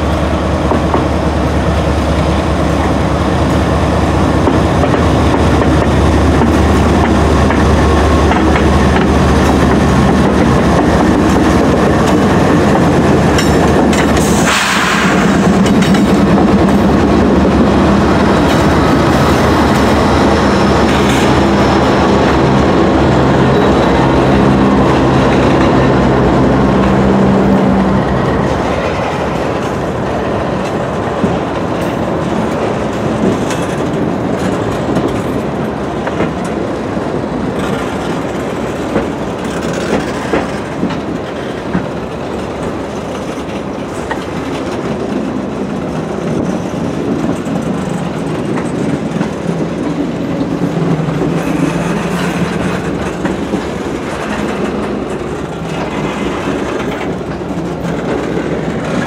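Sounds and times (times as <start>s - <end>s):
train rumble: 0.0s - 59.0s
train wheels clacking over rail joints: 0.6s - 59.0s.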